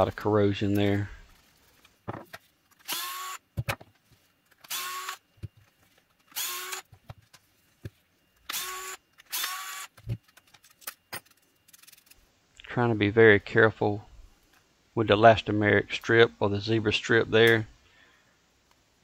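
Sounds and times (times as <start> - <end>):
electric screwdriver spurts: 2.8 - 3.4, 4.5 - 5.2, 6.2 - 6.9, 8.5 - 10.0.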